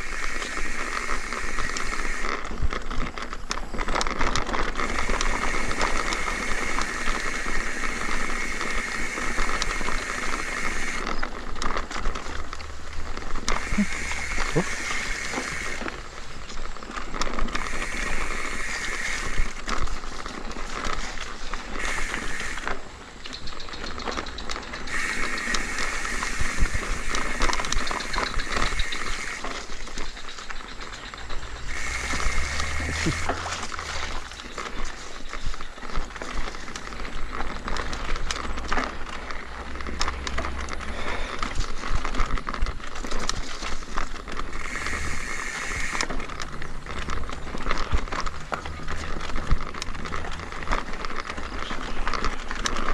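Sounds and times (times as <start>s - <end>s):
bike frame rattling: 0.0s - 52.9s
tyre noise: 0.0s - 52.9s
wind rumbling on microphone: 0.0s - 52.9s
high buzz: 13.5s - 15.9s.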